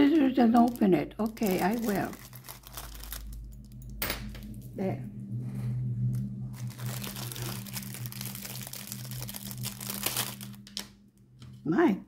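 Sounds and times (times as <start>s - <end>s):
plastic wrapping crinkling: 0.0s - 4.6s, 6.0s - 11.0s.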